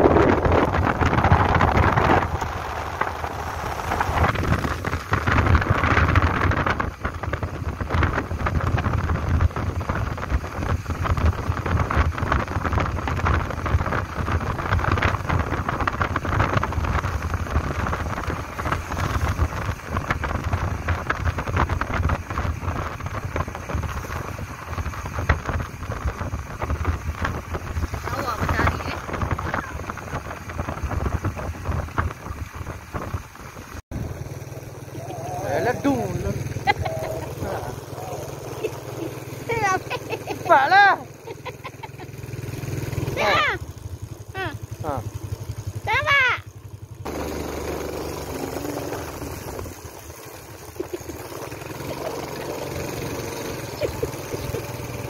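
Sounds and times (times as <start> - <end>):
wind buffeting microphone: 0.0 - 43.7
engine and road noise: 0.0 - 55.0.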